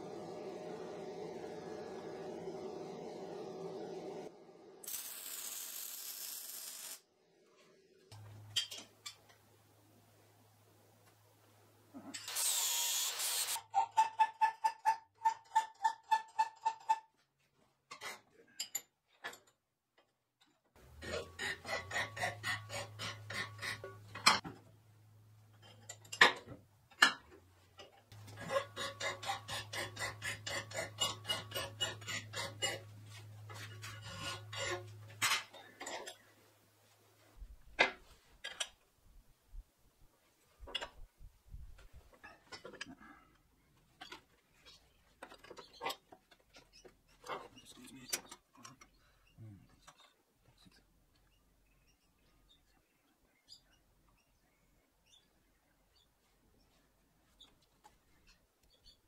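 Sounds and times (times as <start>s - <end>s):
welder humming: 0.0s - 7.0s, 12.3s - 13.6s
welding arc crackle: 4.8s - 7.0s.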